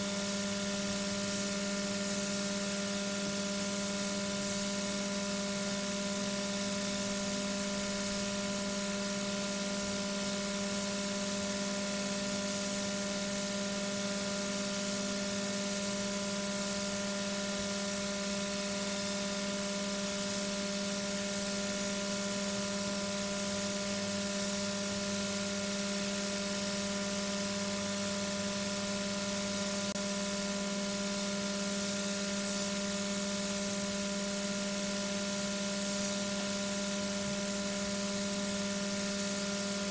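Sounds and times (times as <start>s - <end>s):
electrical hum: 22.4s - 39.9s.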